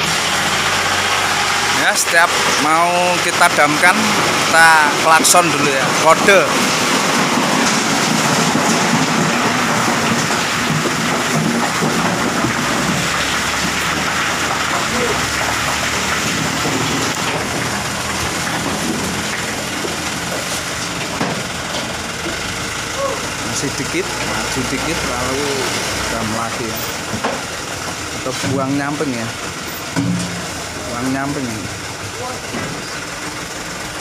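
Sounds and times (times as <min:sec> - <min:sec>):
dump truck engine running: 0:00.0 - 0:34.0
hydraulic rushing noise: 0:00.0 - 0:34.0.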